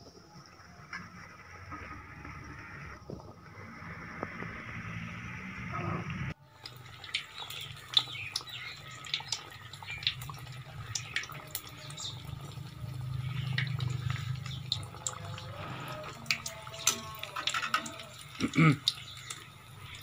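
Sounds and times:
oil sizzling and popping: 6.4s - 20.0s.

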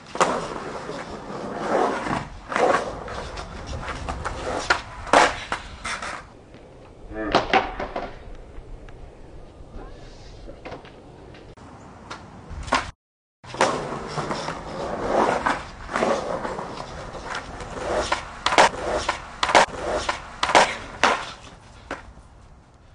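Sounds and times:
skateboard clacking on ground: 0.0s - 8.9s, 13.5s - 22.8s
skateboard wheels rolling on concrete: 0.0s - 22.9s.

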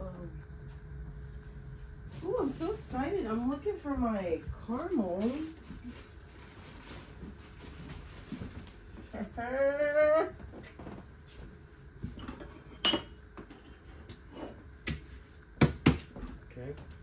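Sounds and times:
dishes clinking on counter: 12.2s - 13.7s.

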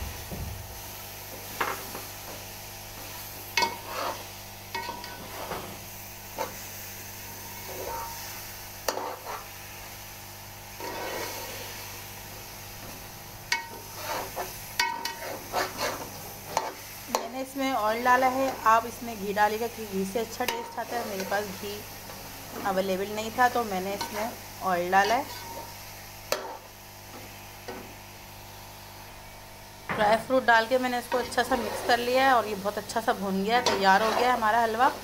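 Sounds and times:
food sizzling in oil: 0.0s - 35.0s
metal spoon scraping steel pot: 3.6s - 5.5s, 13.6s - 17.2s, 25.0s - 25.7s, 31.1s - 32.3s, 33.6s - 35.0s.

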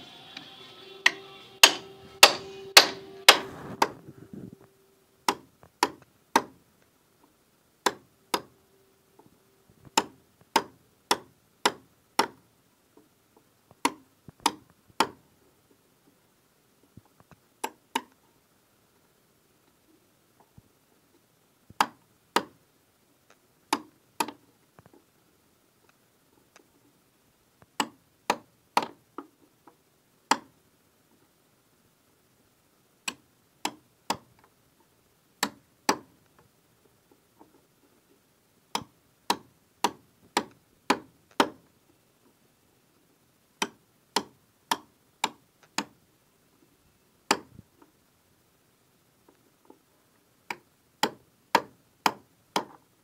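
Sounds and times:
hammer tapping chisel into wood: 1.1s - 4.0s, 5.3s - 6.6s, 9.9s - 12.4s, 35.4s - 36.1s, 38.8s - 41.6s, 47.3s - 47.5s, 51.0s - 52.8s.

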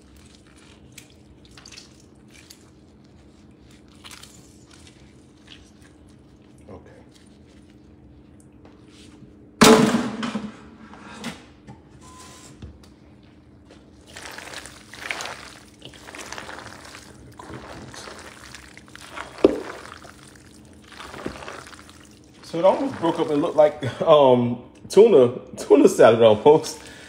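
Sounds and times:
spoon stirring pasta in metal bowl: 14.0s - 23.8s.

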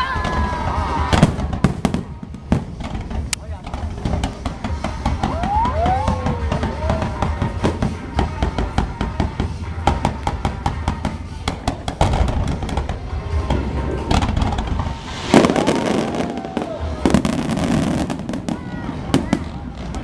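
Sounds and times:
fireworks bangs and crackles: 0.0s - 20.0s
music: 0.0s - 20.0s
low rumble: 11.5s - 20.0s.

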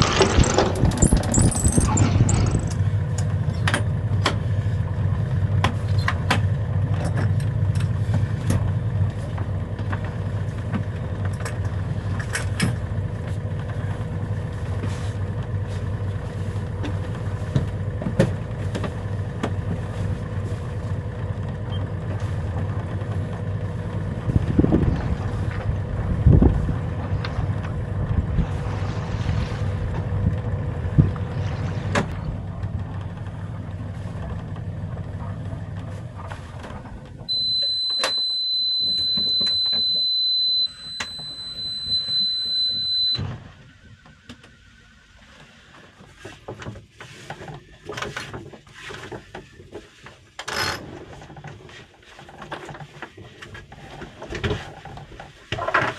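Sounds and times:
boat engine running: 0.0s - 46.2s
high-pitched electronic beep: 37.3s - 43.2s.

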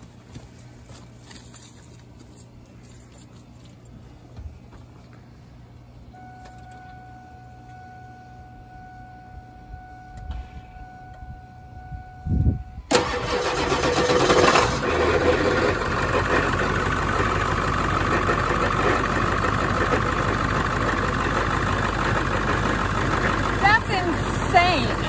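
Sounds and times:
diesel engine cranking and idling: 12.8s - 25.0s.

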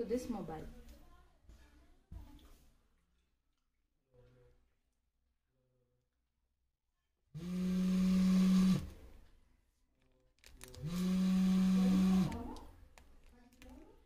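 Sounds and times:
mobile phone buzzing: 7.4s - 8.9s, 10.8s - 12.3s.

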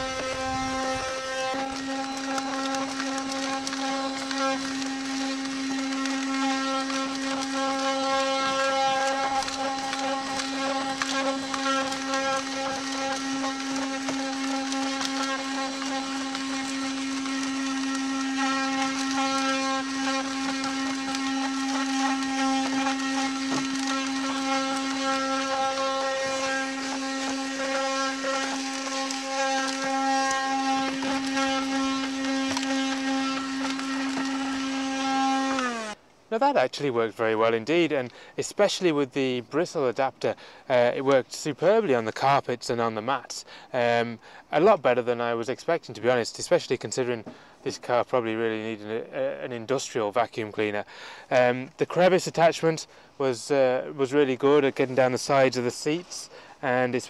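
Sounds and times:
handheld vacuum cleaner whining: 0.0s - 36.0s.

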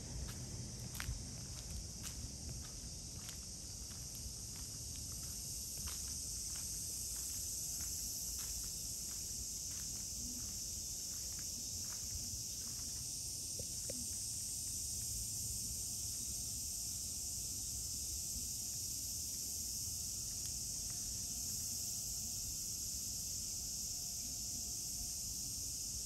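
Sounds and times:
low outdoor rumble: 0.0s - 5.2s
insect chorus buzzing: 0.0s - 26.0s.

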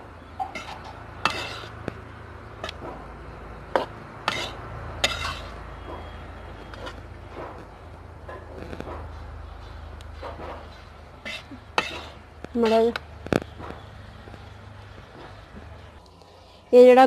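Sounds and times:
spatula scraping in pan: 0.5s - 1.8s, 3.8s - 5.7s, 6.5s - 7.1s, 10.6s - 14.0s.

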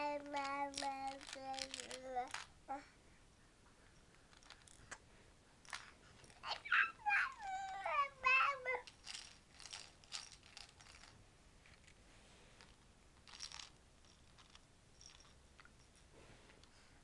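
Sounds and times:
plastic teething toy rattling: 0.2s - 2.5s, 4.3s - 4.8s, 5.6s - 8.0s, 8.7s - 11.9s, 13.2s - 15.4s
baby babbling: 6.4s - 8.9s.

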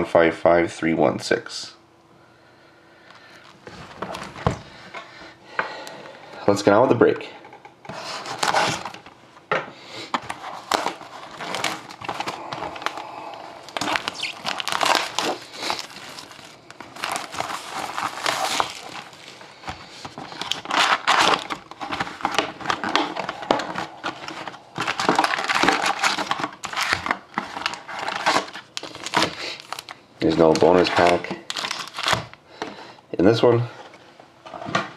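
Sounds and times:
card packs rustling: 3.1s - 4.8s, 7.9s - 9.2s, 10.0s - 32.7s
plastic shrink wrap crinkling: 10.1s - 32.4s.

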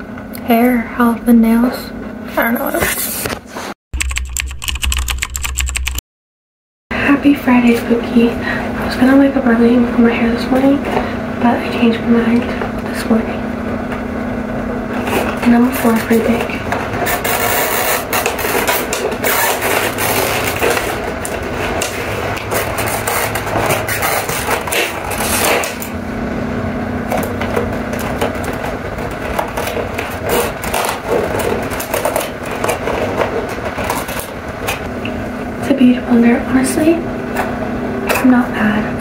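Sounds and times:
cardboard scraping and clicking: 16.7s - 25.9s, 27.1s - 34.8s.

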